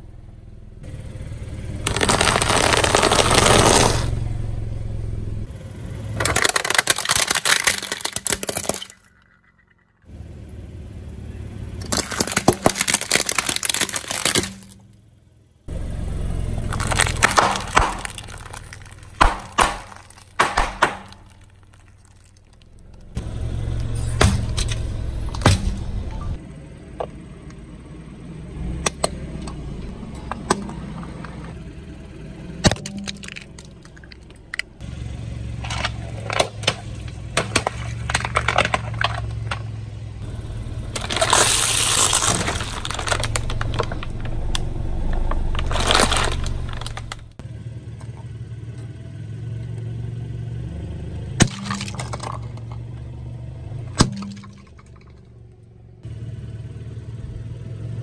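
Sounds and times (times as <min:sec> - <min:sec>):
low engine hum: 0:00.0 - 0:06.6, 0:10.0 - 0:58.0
plastic cracking under tyre: 0:01.8 - 0:04.2, 0:06.2 - 0:09.4, 0:11.8 - 0:14.8, 0:16.6 - 0:23.2, 0:32.6 - 0:34.8, 0:35.6 - 0:39.7, 0:40.8 - 0:47.4, 0:51.4 - 0:52.8.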